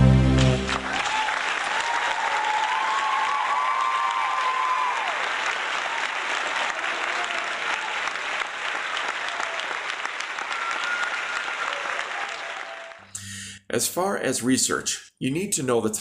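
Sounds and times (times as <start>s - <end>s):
audience clapping: 0.0s - 13.4s
faint cheering voices: 0.8s - 8.4s, 9.0s - 13.0s.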